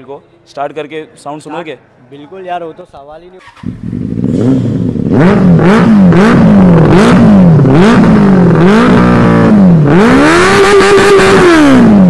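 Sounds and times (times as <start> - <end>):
motorcycle engine revving: 3.4 - 12.0.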